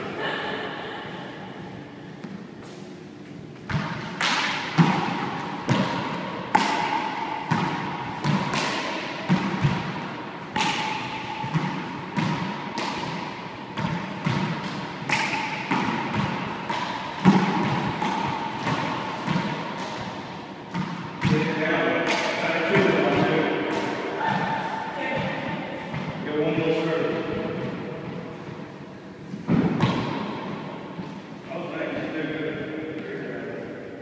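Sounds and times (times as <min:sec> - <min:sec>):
rubber ball hitting walls and floor: 0:03.6 - 0:24.4, 0:29.4 - 0:30.8.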